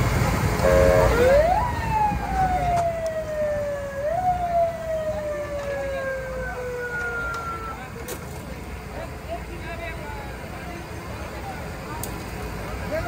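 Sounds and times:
street noise: 0.0s - 13.0s
siren wailing: 0.6s - 8.0s.

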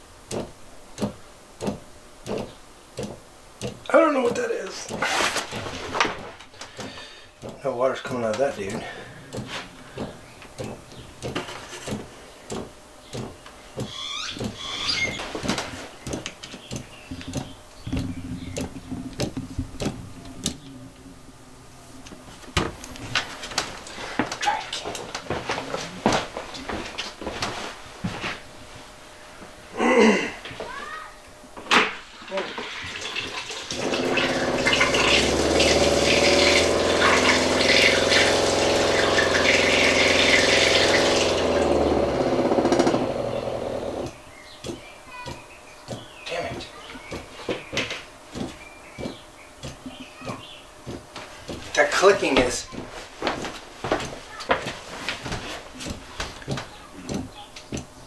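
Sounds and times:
water pump motor humming: 0.0s - 26.8s, 31.9s - 54.1s
water gushing into plastic bucket: 32.1s - 42.6s.

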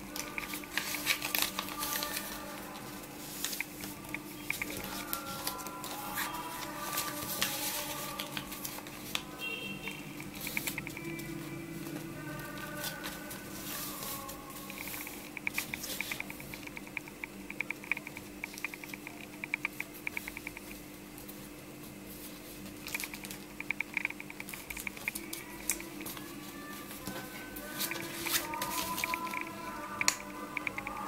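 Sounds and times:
soft background music: 0.0s - 19.3s, 24.3s - 31.0s
paper folding and rustling: 0.1s - 9.4s, 22.1s - 23.4s, 24.5s - 29.8s.

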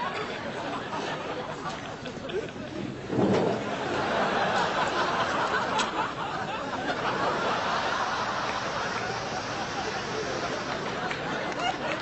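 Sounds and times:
studio audience laughing: 3.6s - 12.0s.

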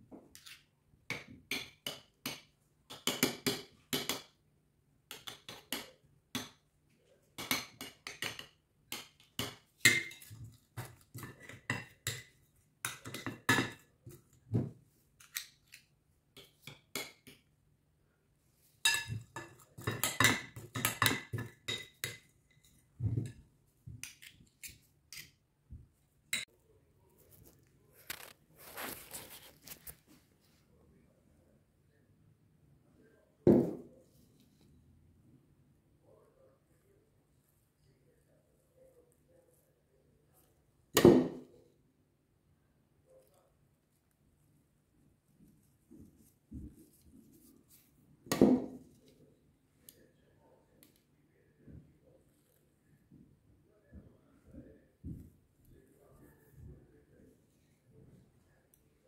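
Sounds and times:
cutlery and dishes clinking: 7.4s - 14.0s, 18.8s - 23.4s.

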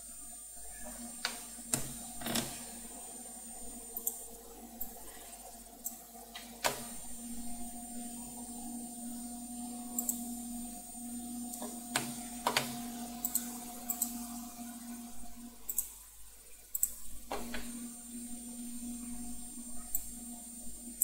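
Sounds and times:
faint high whine: 0.0s - 21.0s
steady low hum: 0.0s - 21.0s
computer mouse clicks: 9.9s - 10.3s, 11.5s - 14.2s, 15.7s - 16.0s, 16.7s - 17.7s, 19.9s - 20.2s.

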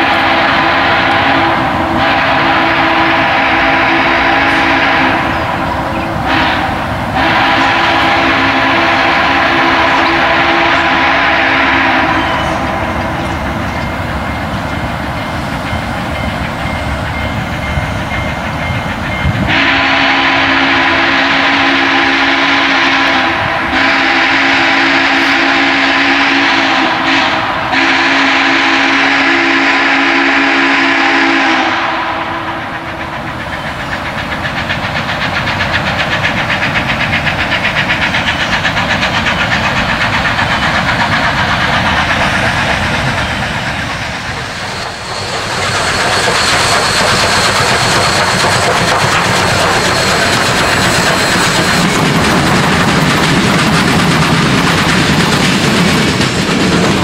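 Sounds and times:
steam whistle blasts: 0.0s - 13.5s, 19.4s - 32.8s
steam locomotive running beat: 0.0s - 57.0s.

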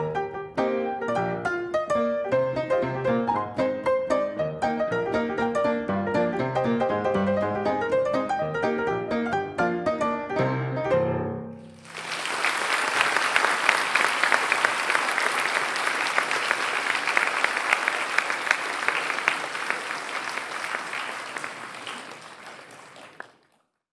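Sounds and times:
audience applause: 11.7s - 23.7s.

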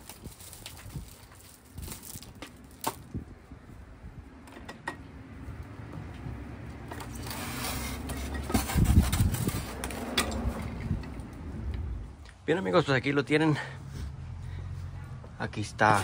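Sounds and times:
styrofoam scraping: 7.1s - 10.0s.

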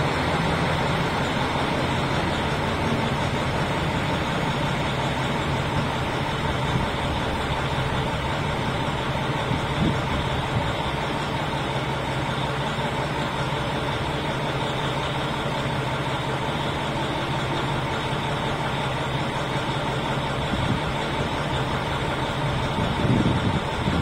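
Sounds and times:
railcar engine humming: 0.0s - 24.0s.

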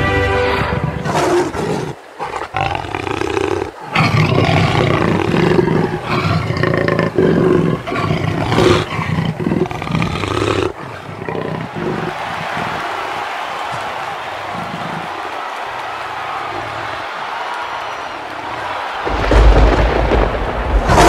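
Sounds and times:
big cat growling and roaring: 0.5s - 12.8s.

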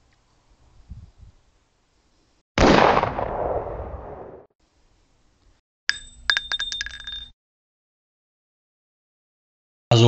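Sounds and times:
air rifle shot: 2.6s - 4.5s.

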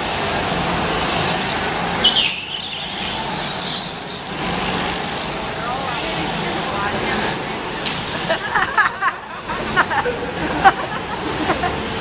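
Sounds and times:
go-kart motors running: 0.0s - 12.0s
high squeal: 0.5s - 1.2s, 2.0s - 4.4s.

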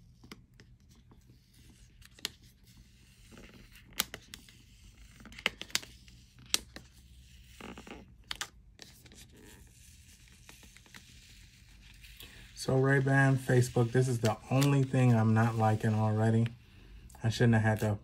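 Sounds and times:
quiet handling: 10.3s - 16.6s.

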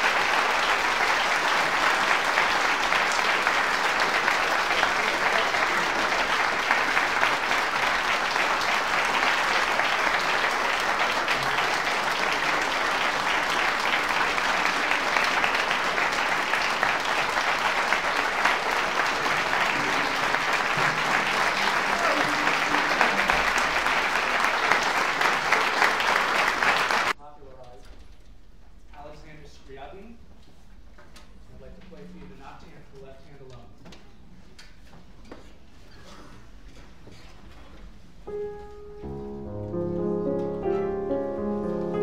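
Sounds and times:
audience applauding: 0.0s - 27.2s.

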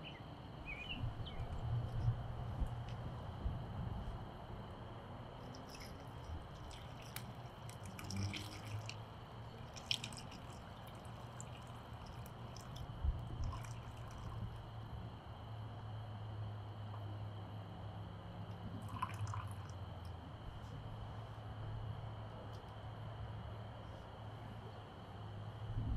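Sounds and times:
faint low hum: 0.0s - 25.9s
campfire crackling and popping: 5.5s - 9.0s.

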